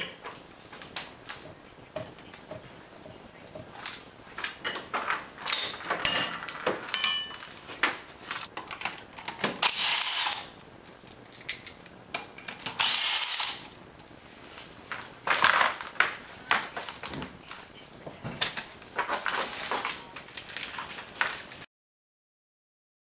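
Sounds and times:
metallic clinks and rattles: 0:05.4 - 0:07.6
impact wrench whine: 0:09.5 - 0:10.6, 0:12.6 - 0:13.8.

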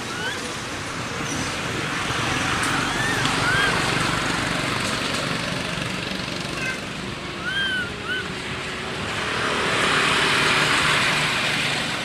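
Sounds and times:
infant monkey squeaking: 0:00.0 - 0:00.5, 0:02.8 - 0:03.9, 0:07.4 - 0:08.3.

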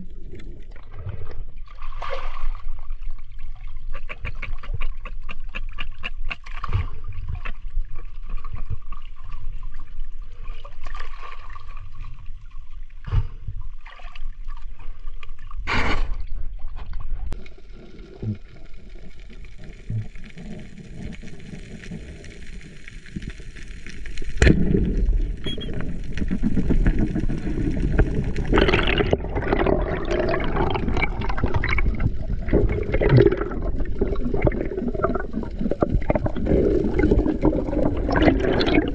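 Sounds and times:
water sloshing and crackling: 0:00.0 - 0:38.9
muffled underwater rush: 0:16.4 - 0:38.9.

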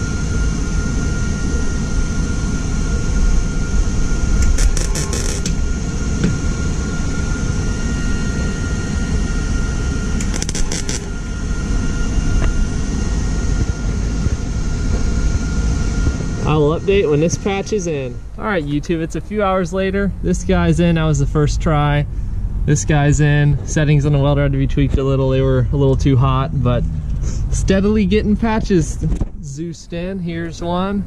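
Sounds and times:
welder arc sizzling: 0:04.1 - 0:08.6, 0:09.3 - 0:19.5.

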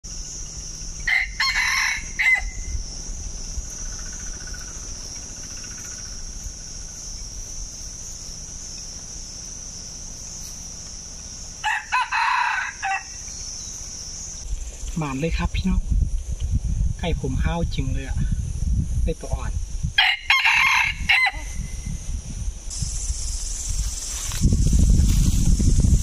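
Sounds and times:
high-pitched insect buzz: 0:00.0 - 0:17.0, 0:18.0 - 0:26.0
rooster crowing: 0:01.0 - 0:02.9, 0:11.6 - 0:13.3, 0:20.0 - 0:21.7.

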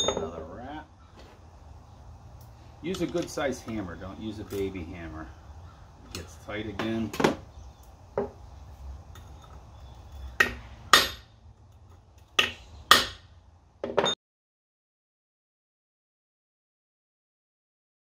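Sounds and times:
hammer striking metal punch: 0:10.4 - 0:11.3, 0:12.4 - 0:14.2.

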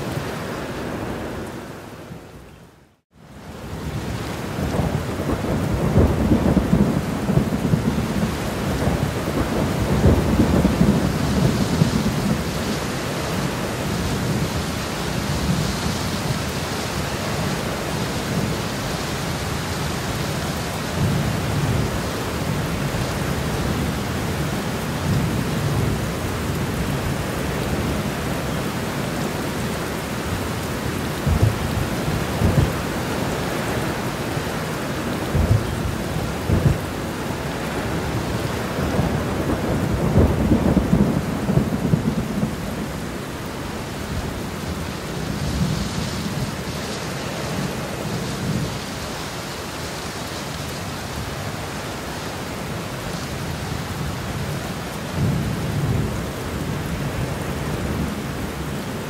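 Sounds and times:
heavy rain: 0:00.0 - 0:59.0
thunder rumbling: 0:03.7 - 0:49.1.

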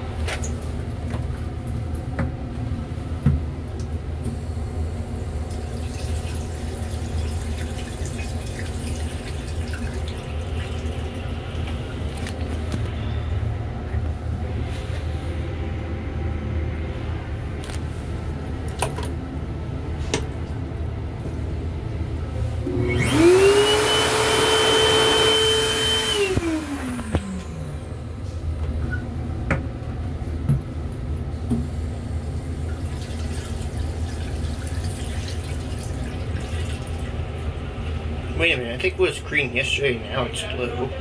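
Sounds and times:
railcar low rumble: 0:00.0 - 0:05.4, 0:10.8 - 0:22.7, 0:27.0 - 0:32.9
electric hand dryer blowing: 0:22.6 - 0:28.2.

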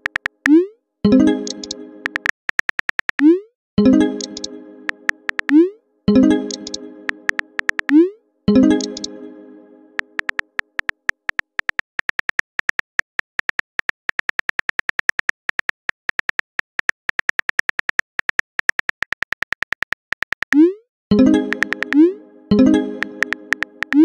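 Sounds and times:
phone keyboard key clicks: 0:00.0 - 0:00.5, 0:01.4 - 0:03.2, 0:04.9 - 0:05.6, 0:06.5 - 0:07.9, 0:10.2 - 0:20.6
chime-like tone: 0:08.5 - 0:10.0.

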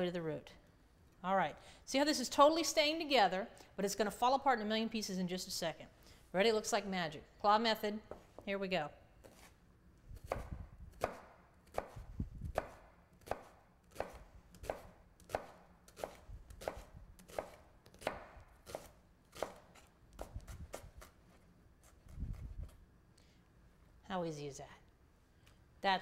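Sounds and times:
knife chopping on cutting board: 0:10.2 - 0:21.2.

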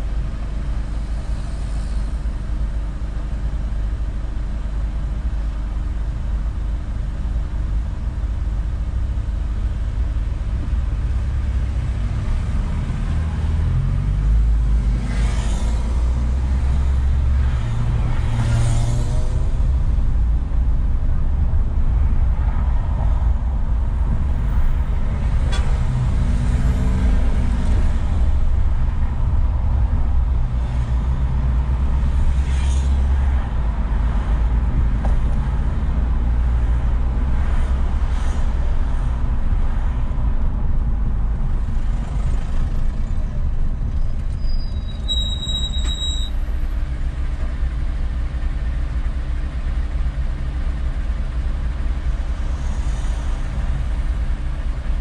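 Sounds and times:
car driving in traffic: 0:00.0 - 0:55.0
brief high-pitched squeal: 0:44.0 - 0:46.5.

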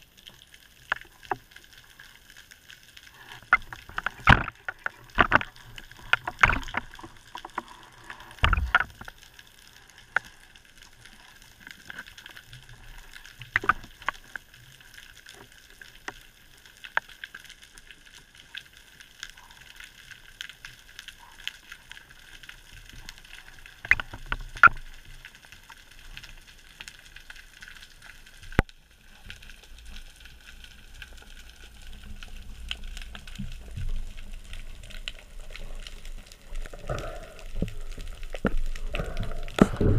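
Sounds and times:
low rumble of moving water: 0:00.0 - 0:39.9
steady underwater hiss: 0:00.0 - 0:39.9
sharp clicks and knocks: 0:03.5 - 0:07.6, 0:08.4 - 0:09.1, 0:13.6 - 0:14.2.

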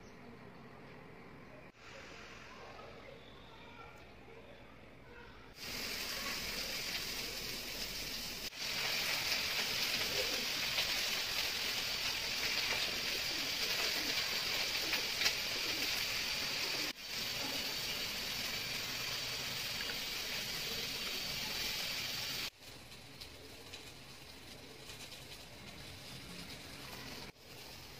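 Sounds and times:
steady high hiss: 0:05.6 - 0:27.9.

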